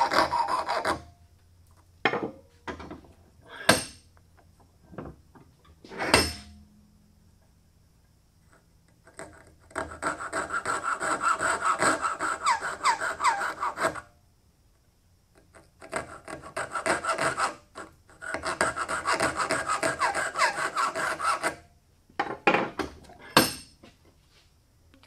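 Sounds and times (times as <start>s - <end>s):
saw cutting wood: 0.0s - 1.0s, 9.7s - 14.0s, 15.8s - 21.6s
saw blade squealing: 0.0s - 1.1s, 10.0s - 14.0s, 18.7s - 21.6s.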